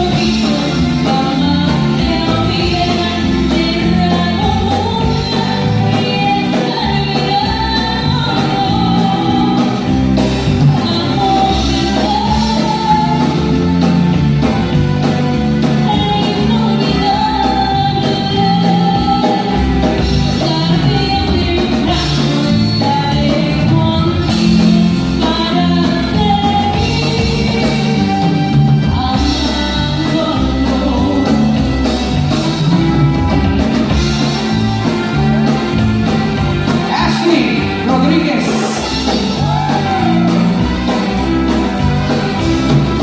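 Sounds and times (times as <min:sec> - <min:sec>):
woman singing: 0:00.0 - 0:35.7, 0:36.3 - 0:43.0
live band with electric guitars: 0:00.0 - 0:43.0.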